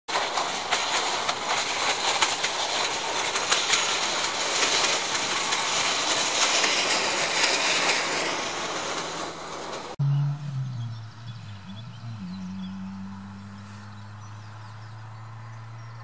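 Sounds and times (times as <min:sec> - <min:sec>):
clatter over rail joints: 0:00.1 - 0:10.0
train wheels rushing on rails: 0:00.1 - 0:10.0.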